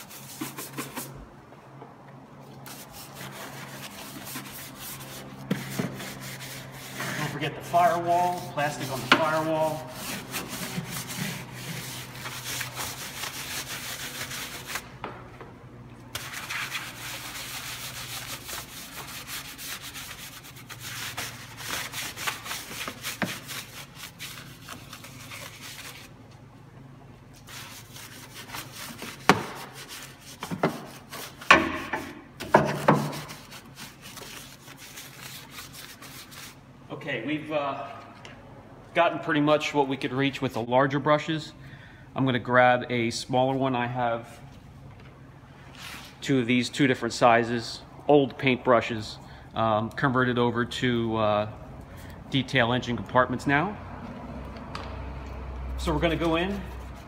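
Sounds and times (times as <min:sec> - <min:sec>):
brush scrubbing plastic: 0:00.0 - 0:01.2, 0:02.6 - 0:14.8, 0:16.2 - 0:26.1, 0:27.4 - 0:31.5, 0:32.8 - 0:36.6.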